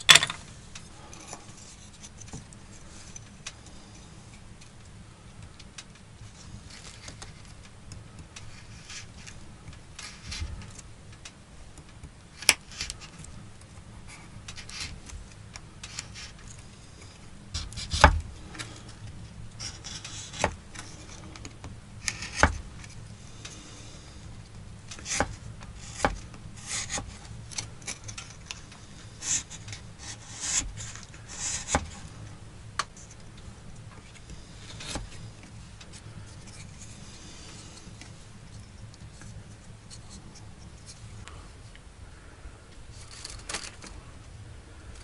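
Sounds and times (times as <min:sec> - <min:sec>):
knife scraping on wood: 0:19.6 - 0:21.3, 0:25.0 - 0:28.6, 0:29.2 - 0:32.1.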